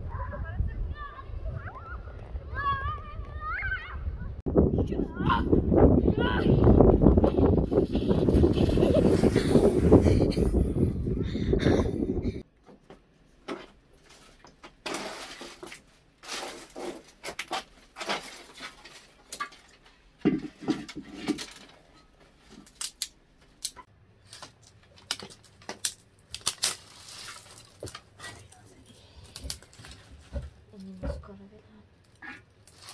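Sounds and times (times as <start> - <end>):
twigs rustling: 13.5 - 31.0, 31.9 - 32.9
dry sticks snapping: 22.5 - 28.1, 29.2 - 30.0, 32.0 - 32.9.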